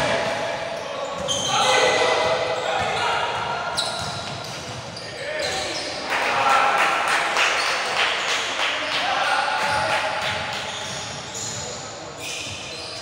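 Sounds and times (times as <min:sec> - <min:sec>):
shoe squeaks: 0:00.8 - 0:06.0, 0:10.7 - 0:13.0.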